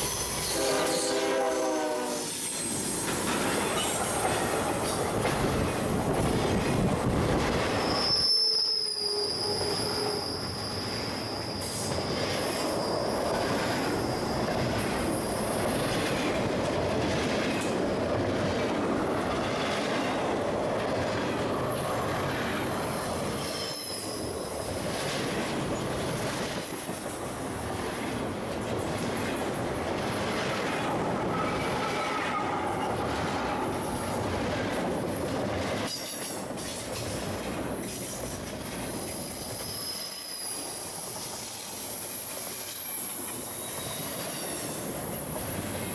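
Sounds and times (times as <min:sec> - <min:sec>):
freight train wheel rumble: 0:00.0 - 0:08.4, 0:09.3 - 0:45.9
high-pitched wheel squeal: 0:07.6 - 0:14.6, 0:23.3 - 0:24.4, 0:31.3 - 0:33.7, 0:39.2 - 0:44.8.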